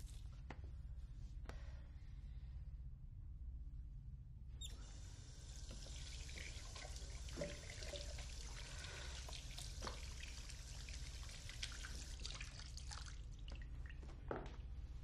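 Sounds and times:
faucet water running into sink: 5.0s - 13.2s
hands washing with splashes: 5.8s - 14.2s.

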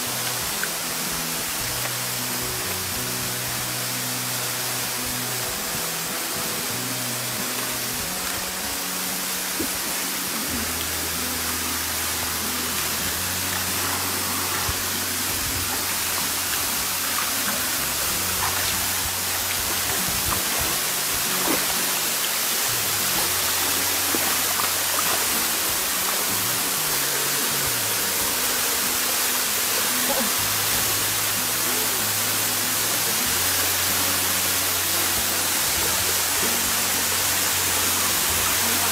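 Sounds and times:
background music: 0.0s - 38.9s
stream and small waterfall: 0.0s - 38.9s.

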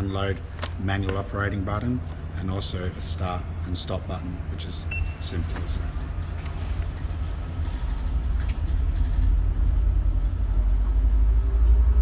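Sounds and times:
low machinery rumble: 0.0s - 12.0s
thin high-pitched whine: 4.7s - 12.0s.

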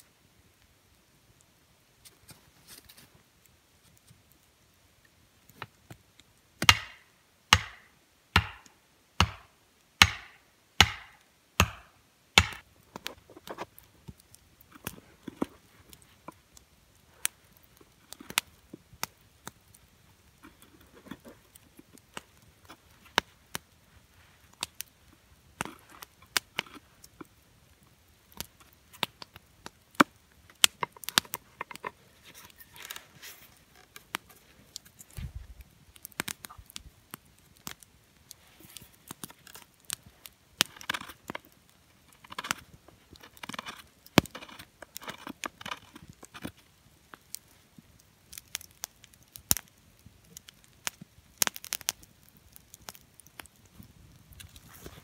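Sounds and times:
chopping strikes on wood: 6.6s - 12.6s.

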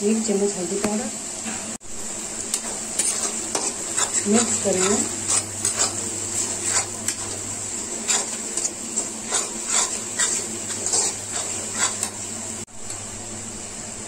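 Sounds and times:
steel spatula scraping a pan: 2.6s - 12.4s.

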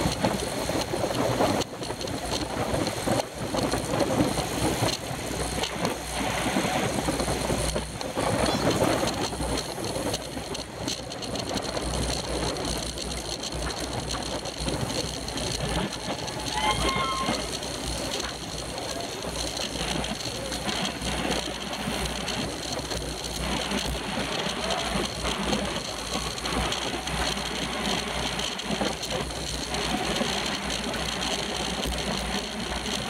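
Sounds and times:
road and bike rattle: 0.0s - 33.0s
wind buffeting microphone: 0.0s - 33.0s.

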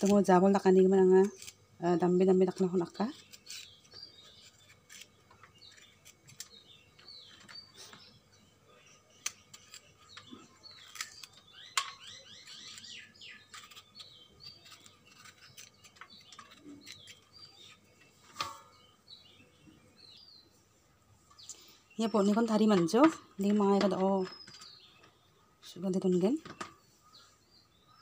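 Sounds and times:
small birds chirping: 0.0s - 28.0s
bean pods snapping: 9.2s - 17.8s.

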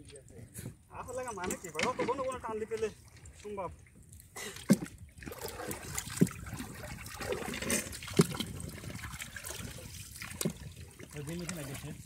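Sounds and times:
water splashing from pole strokes: 1.4s - 12.0s.

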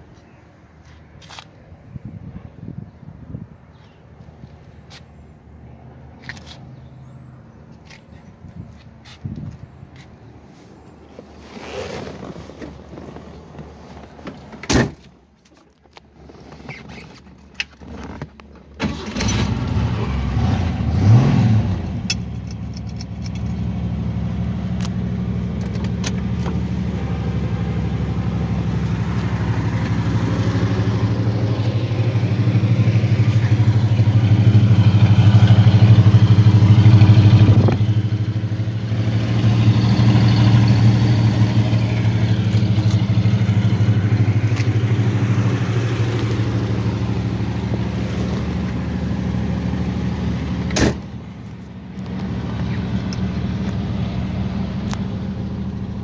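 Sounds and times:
car engine starting and idling: 16.8s - 56.0s.

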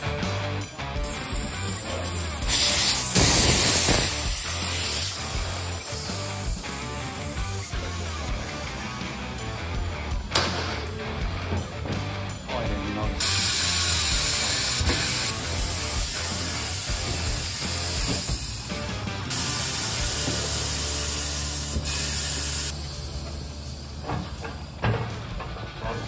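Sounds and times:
compressed air hissing: 1.0s - 9.2s, 13.2s - 24.8s.

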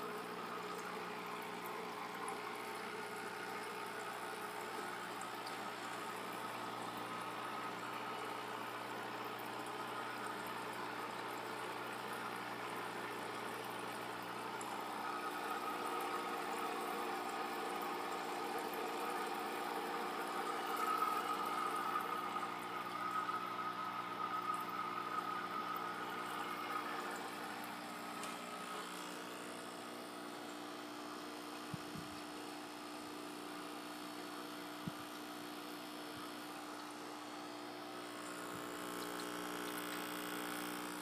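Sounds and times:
water trickling and bubbling: 0.0s - 32.8s
aquarium pumps humming: 0.0s - 41.0s.

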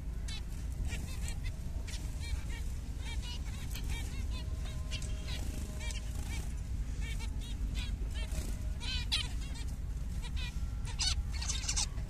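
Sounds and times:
finches calling: 0.0s - 12.0s
steady low rumble: 0.0s - 12.0s.

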